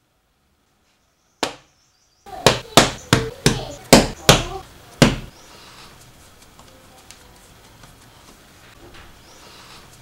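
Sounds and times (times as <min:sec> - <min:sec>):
knife chopping on worktop: 0:02.5 - 0:05.3.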